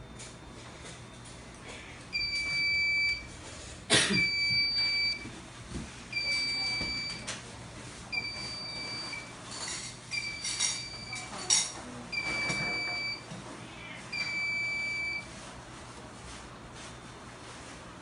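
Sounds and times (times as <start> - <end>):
high-pitched alarm beeps: 2.1 - 3.3, 4.2 - 5.2, 6.1 - 7.3, 8.1 - 9.3, 10.1 - 11.4, 12.1 - 13.3, 14.1 - 15.3.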